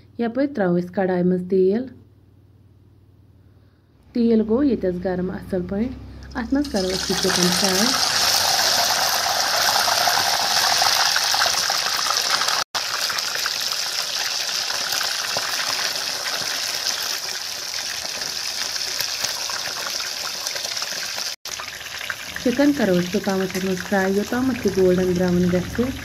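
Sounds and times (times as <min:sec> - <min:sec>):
chicken sizzling in hot oil: 0:06.6 - 0:26.0.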